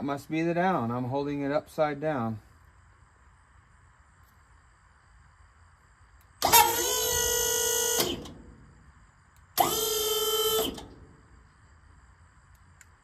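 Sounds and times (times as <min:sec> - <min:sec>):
hydraulic pump whining: 0:06.4 - 0:08.4, 0:09.5 - 0:11.0.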